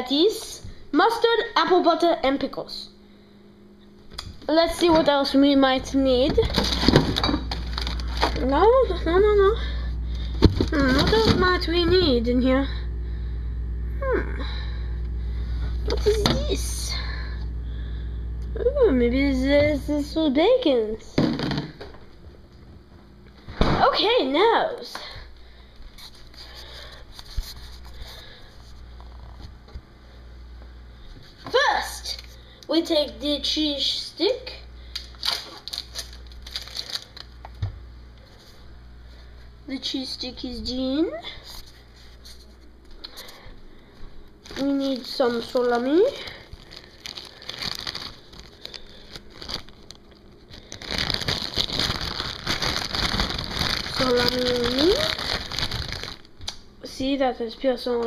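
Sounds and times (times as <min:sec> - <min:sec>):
rustling and handling noise: 0:04.3 - 0:12.2, 0:25.7 - 0:29.6, 0:34.9 - 0:37.6, 0:41.3 - 0:56.6
plastic packaging crinkling: 0:06.3 - 0:11.9, 0:26.0 - 0:29.2, 0:34.9 - 0:37.6, 0:44.4 - 0:56.6.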